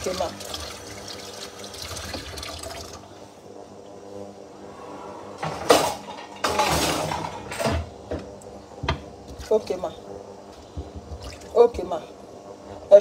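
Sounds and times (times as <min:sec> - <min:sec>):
dishes clattering: 0:05.4 - 0:07.9.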